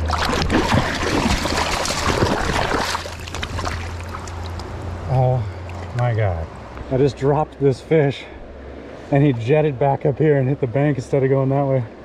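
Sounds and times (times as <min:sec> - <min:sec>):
fish splashing in shallow water: 0:00.0 - 0:04.8.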